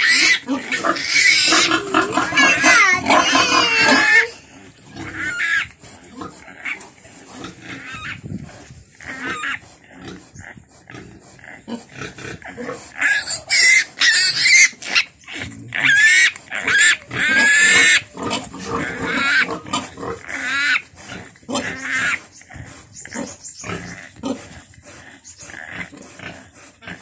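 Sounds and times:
piglet squealing: 0:00.0 - 0:05.8, 0:07.7 - 0:08.3, 0:09.0 - 0:09.6, 0:13.0 - 0:19.5.

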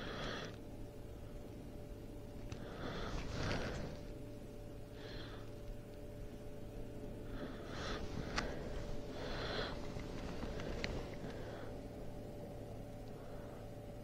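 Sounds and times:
person breathing through nose: 0:00.0 - 0:00.6, 0:02.6 - 0:04.1, 0:04.9 - 0:05.6, 0:07.2 - 0:12.0
faint steady hum: 0:00.0 - 0:14.0.

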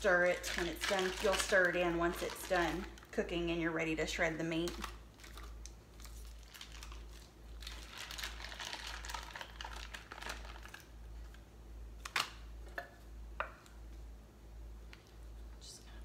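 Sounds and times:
packaging crinkling: 0:00.0 - 0:03.2, 0:04.6 - 0:11.4.

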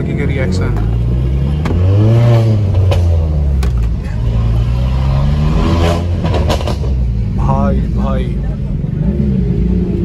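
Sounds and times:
car engine revving: 0:00.0 - 0:10.0
exhaust pops: 0:05.9 - 0:07.1.

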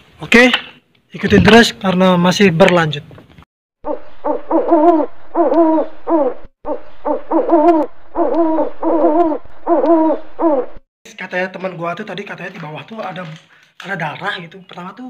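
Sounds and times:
owl hooting: 0:03.8 - 0:10.8.

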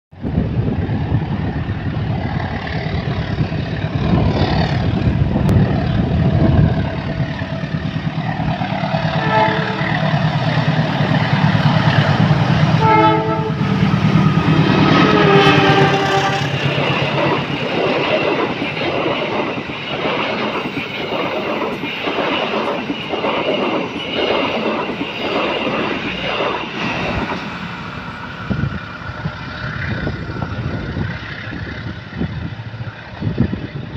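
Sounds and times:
locomotive engine running: 0:00.5 - 0:33.9
train wheels clicking over rail joints: 0:01.4 - 0:33.9
train horn blasts: 0:09.1 - 0:10.3, 0:12.7 - 0:16.7.

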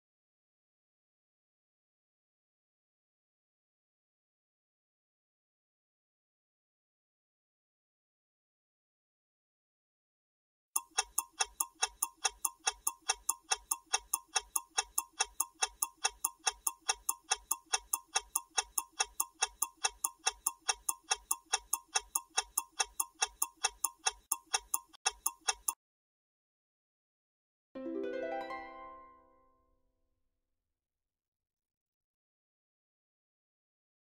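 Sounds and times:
clock ticking: 0:10.8 - 0:25.8.

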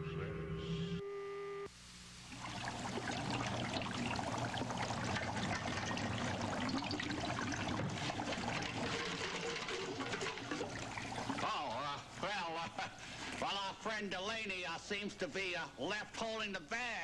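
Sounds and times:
liquid bubbling and fizzing: 0:02.2 - 0:13.7.

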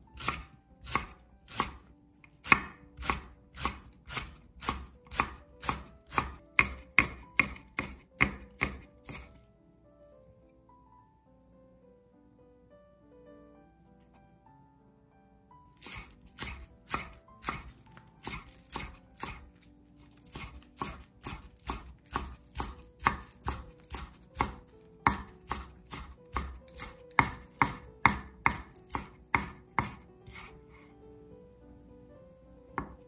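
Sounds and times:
knife chopping on wooden board: 0:00.2 - 0:09.4, 0:15.8 - 0:30.5, 0:32.8 - 0:33.0.

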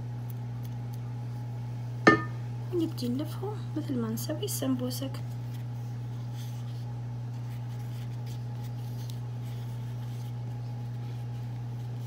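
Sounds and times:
steady low hum: 0:00.0 - 0:12.0
soft rustling of pastry sheets: 0:02.7 - 0:12.0.

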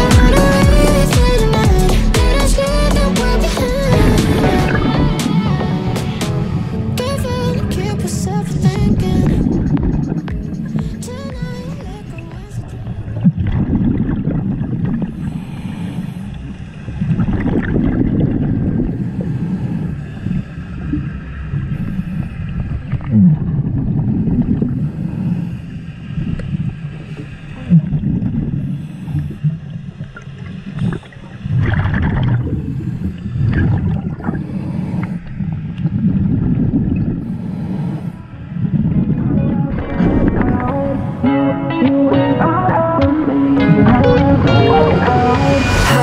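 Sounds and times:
regulator exhale bubbling: 0:30.7 - 0:41.4.

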